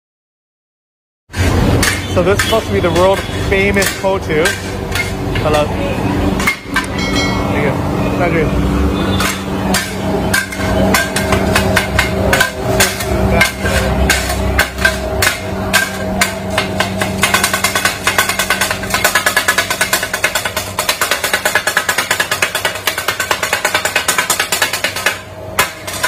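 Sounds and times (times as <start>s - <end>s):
steel blades clanging on griddle: 1.3s - 5.7s, 6.4s - 7.7s, 9.1s - 26.0s
steady hum: 1.3s - 26.0s.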